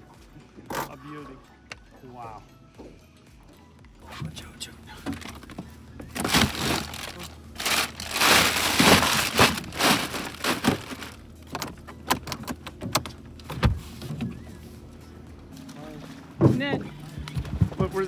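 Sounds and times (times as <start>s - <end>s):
plastic bags of ice crinkling: 6.1s - 11.3s.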